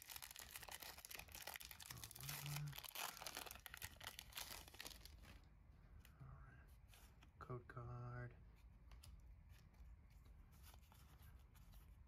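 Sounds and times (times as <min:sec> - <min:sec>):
foil wrapper crinkling and tearing: 0:00.0 - 0:05.4.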